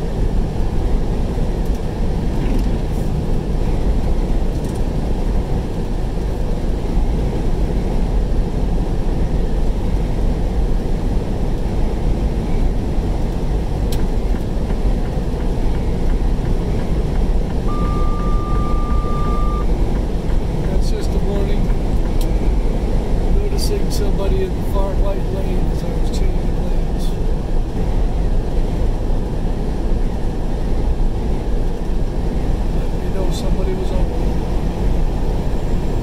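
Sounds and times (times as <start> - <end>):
road and engine noise: 0.0 - 36.0
steady beep: 17.7 - 19.7.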